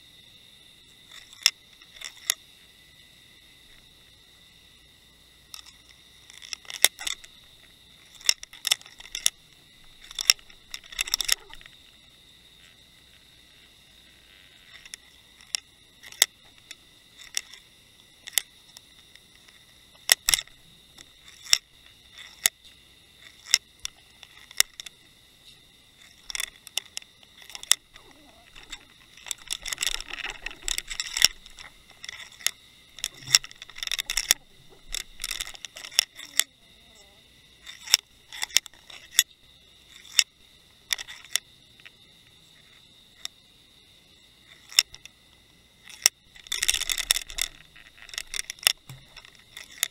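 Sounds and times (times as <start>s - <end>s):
crackling rattle: 0.0s - 49.9s
faint high whine: 0.0s - 49.9s
underwater clicks and knocks: 8.1s - 12.0s, 26.0s - 36.5s, 45.9s - 49.9s.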